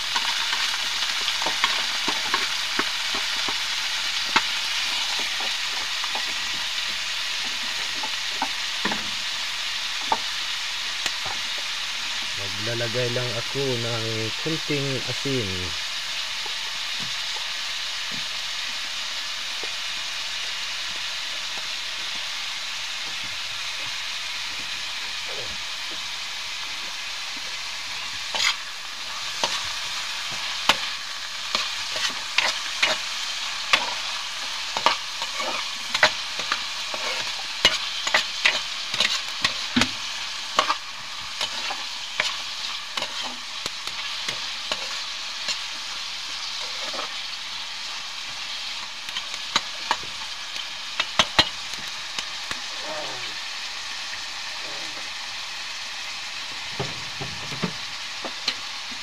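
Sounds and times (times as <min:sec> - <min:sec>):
vegetables sizzling in oil: 0:00.0 - 0:59.0
spatula scraping a pan: 0:28.3 - 0:47.3.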